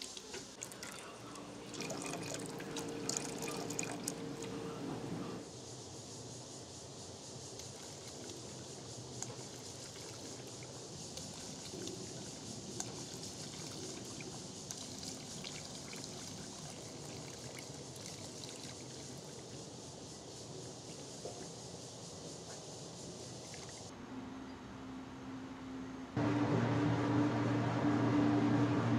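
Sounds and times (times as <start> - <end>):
liquid pouring into vat: 0.0 - 4.6, 11.2 - 19.6.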